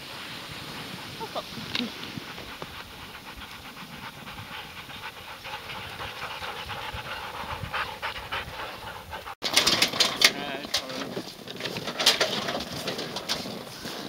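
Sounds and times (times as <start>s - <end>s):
sled dogs running and panting: 0.0s - 14.0s.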